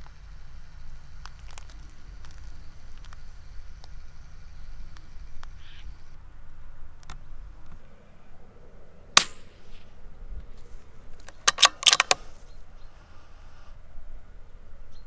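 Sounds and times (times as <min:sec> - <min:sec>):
rifle shot: 0:09.2 - 0:09.9
rifle bolt metallic clicks: 0:11.2 - 0:12.4.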